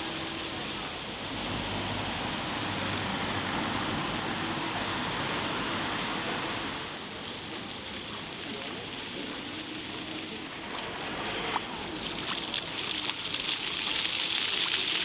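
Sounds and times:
hissing outdoor ambience: 0.0 - 15.0.

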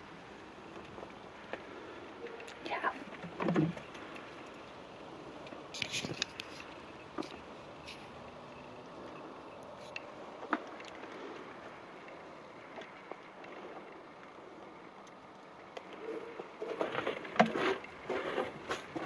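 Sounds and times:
low steady background hiss: 0.0 - 19.0
faint clicks: 0.7 - 4.8, 8.8 - 17.0.

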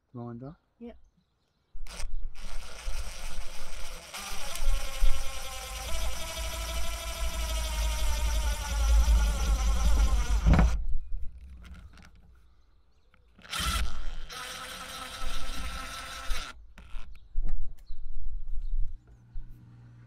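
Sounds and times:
cordless drill running: 1.8 - 10.8, 13.4 - 17.1.

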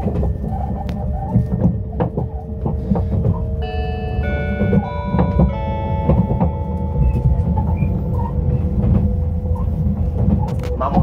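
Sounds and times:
train rumbling: 0.0 - 11.0
electronic chime: 3.6 - 8.7.

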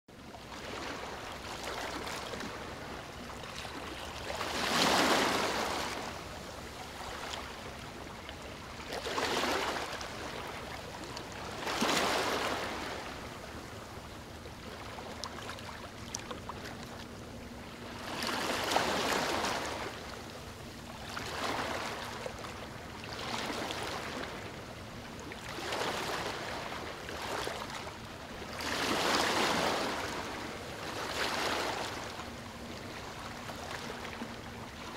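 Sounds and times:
ocean waves washing in: 0.5 - 16.8.

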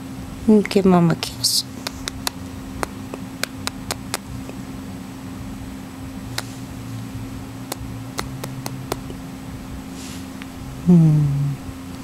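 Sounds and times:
steady low hum: 0.0 - 12.0
bird beak kissing clicks: 1.8 - 4.2, 7.7 - 9.0.

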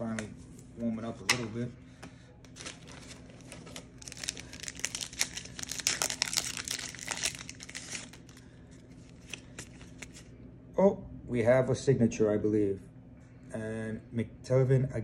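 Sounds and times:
foil wrapper crinkling: 2.5 - 10.3.

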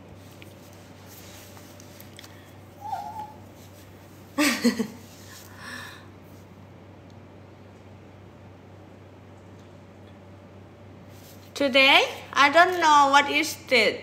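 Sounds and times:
dog whining and yelping: 2.8 - 3.5.

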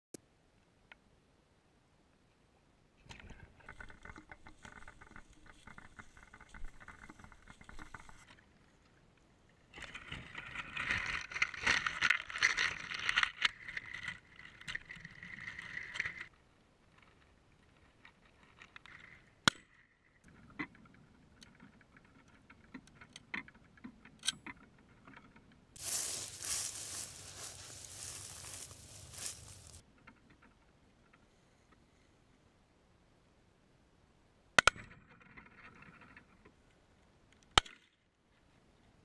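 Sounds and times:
dry grass rustling and crackling: 3.6 - 8.4, 25.8 - 29.8.

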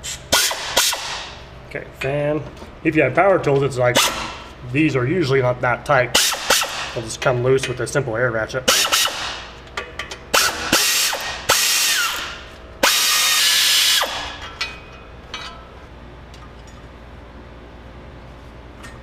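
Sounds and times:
pneumatic air ratchet spinning: 0.0 - 1.3, 6.2 - 7.0, 8.7 - 9.5, 10.3 - 14.4.

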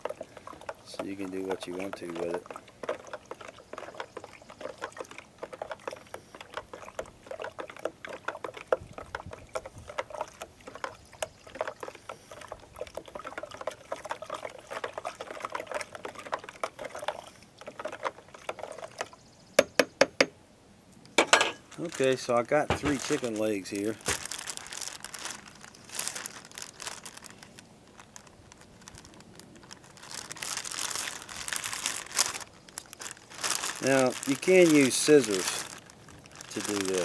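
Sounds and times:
liquid sloshing: 0.0 - 19.2, 21.2 - 37.0.

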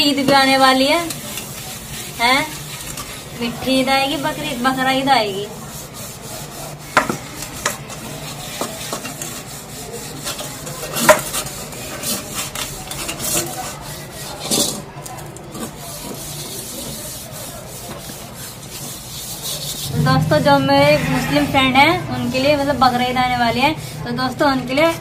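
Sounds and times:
scourer scrubbing metal: 1.0 - 10.4, 16.0 - 25.0.

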